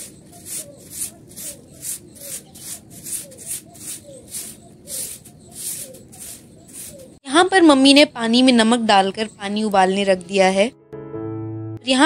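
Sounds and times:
broom sweeping concrete: 0.0 - 7.2.

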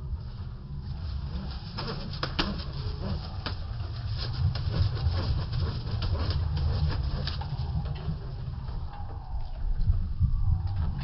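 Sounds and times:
steady low rumble: 0.0 - 11.0
pigeons clicking and fluttering: 1.0 - 9.0.

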